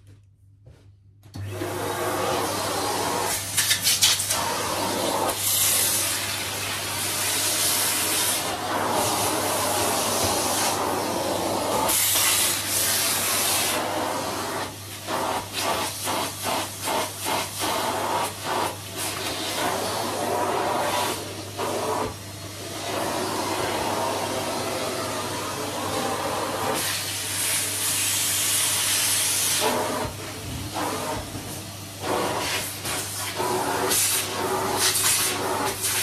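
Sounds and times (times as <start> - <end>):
vacuum cleaner running: 1.3 - 36.0.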